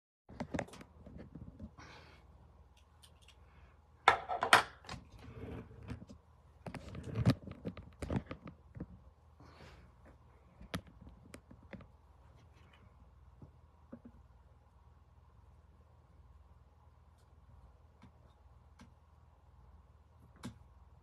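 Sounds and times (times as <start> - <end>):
microphone handling clicks and knocks: 5.8 - 9.0.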